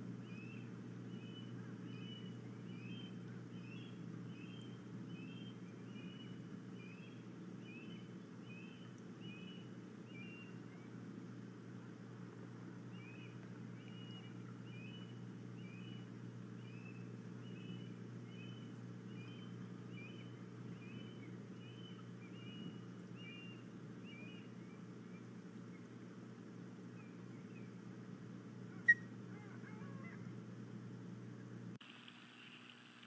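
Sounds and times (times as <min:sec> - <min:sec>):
steady low hum: 0:00.0 - 0:33.0
osprey whistled chirps: 0:00.2 - 0:10.6, 0:13.0 - 0:25.2, 0:28.8 - 0:29.1.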